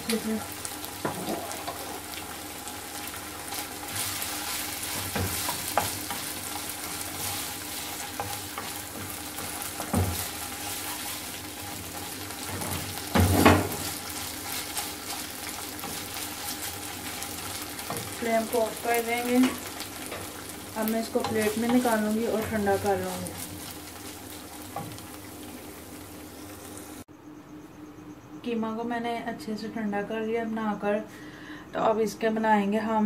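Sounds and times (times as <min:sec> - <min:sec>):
meat sizzling in a wok: 0:00.0 - 0:27.1
wooden spatula scraping a pan: 0:01.0 - 0:02.3, 0:03.0 - 0:25.2.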